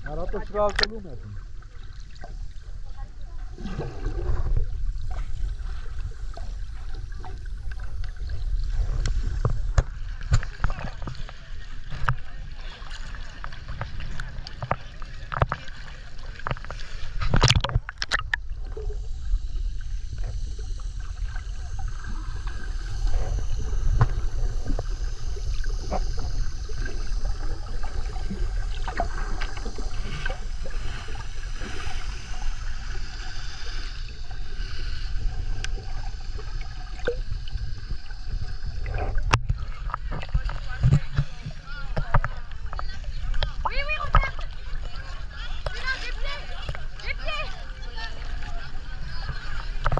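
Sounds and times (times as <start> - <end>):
muffled underwater rumble: 0.0 - 49.9
small underwater clicks and crackles: 0.0 - 49.9
water splash: 3.4 - 41.4.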